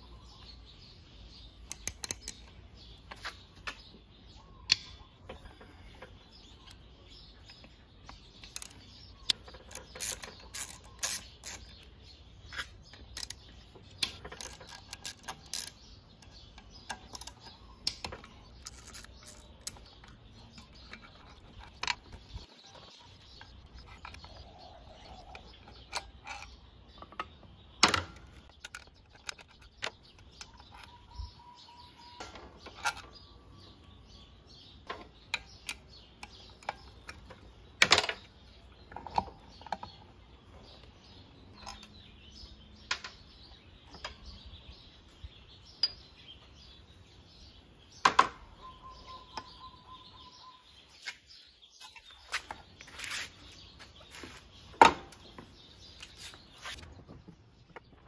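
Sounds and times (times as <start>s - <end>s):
metal parts and tools clicking: 1.6s - 3.8s, 4.6s - 33.8s, 34.8s - 40.1s.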